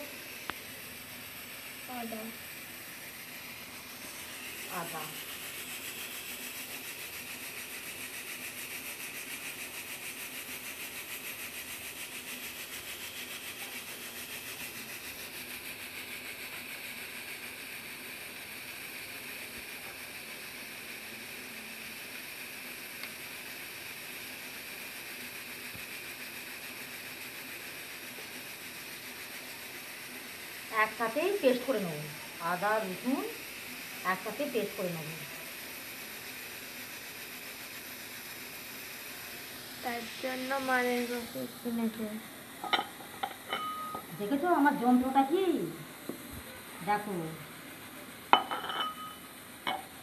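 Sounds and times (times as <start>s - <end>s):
faint fast pulsing: 0.0s - 18.0s, 38.1s - 42.4s
steady background hiss: 0.0s - 50.0s.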